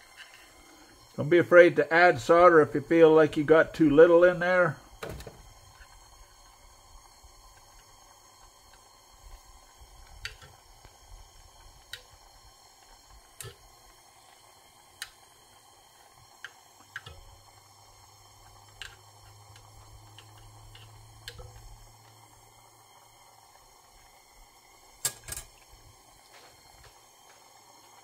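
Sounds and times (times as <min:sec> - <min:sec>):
sharp ticks from hot metal: 0:00.0 - 0:01.3, 0:02.9 - 0:28.0
low steady hum: 0:00.0 - 0:28.0
soldering torch hissing: 0:00.0 - 0:28.0.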